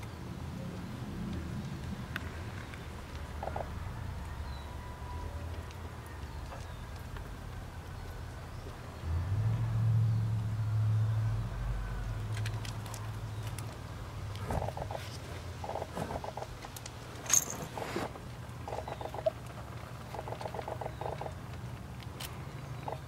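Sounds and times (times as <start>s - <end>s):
kittens scratching on gravel: 12.4s - 23.0s.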